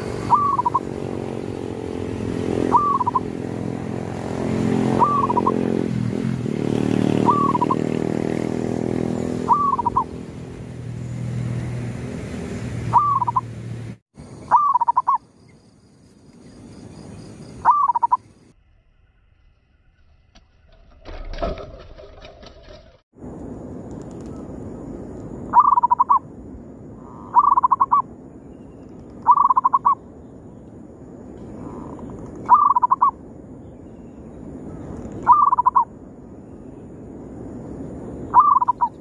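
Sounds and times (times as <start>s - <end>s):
dove calling: 0.0s - 3.6s, 4.8s - 5.8s, 7.0s - 8.4s, 9.2s - 10.2s, 12.8s - 13.6s, 14.2s - 15.3s, 17.0s - 18.4s, 25.5s - 26.2s, 27.0s - 28.1s, 28.8s - 30.0s, 31.4s - 33.2s, 34.7s - 35.9s, 38.3s - 39.0s
engine droning: 0.0s - 15.2s.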